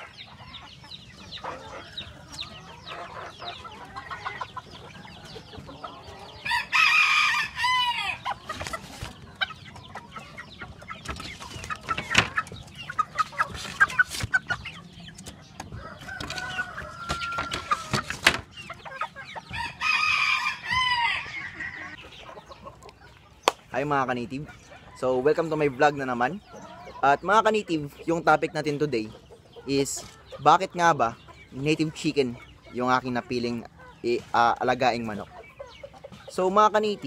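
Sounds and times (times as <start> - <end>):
chickens clucking: 0.0 - 37.0
rooster crowing: 6.5 - 8.2, 15.8 - 18.0, 19.6 - 22.0.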